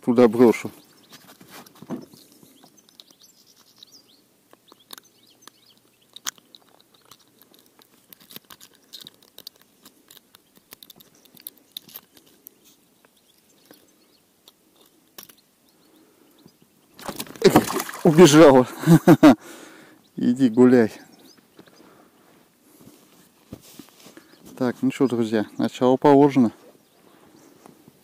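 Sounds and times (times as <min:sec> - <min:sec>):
clicks of metal lure unhooking: 0:04.6 - 0:12.4.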